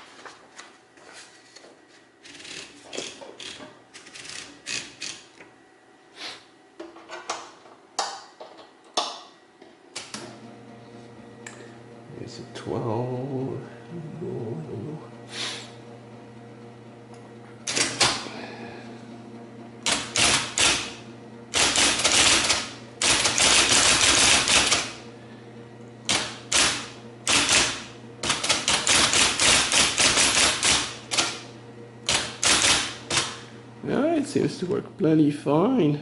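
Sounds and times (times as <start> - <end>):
typewriter motor humming: 2.2 - 5.3, 17.6 - 18.8, 19.8 - 25.2, 26.0 - 33.5
typewriter keystrokes clacking: 19.8 - 20.8, 21.6 - 24.9, 26.1 - 31.4, 32.1 - 33.3.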